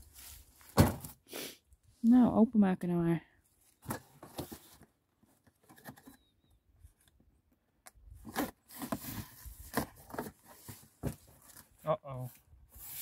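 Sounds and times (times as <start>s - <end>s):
cardboard scraping and tearing: 8.2s - 11.7s.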